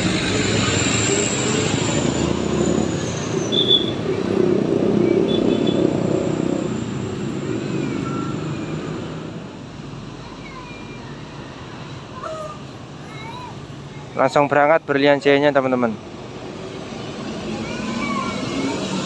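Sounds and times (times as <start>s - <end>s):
bus engines: 0.0s - 19.0s
motorcycles passing: 0.0s - 19.0s.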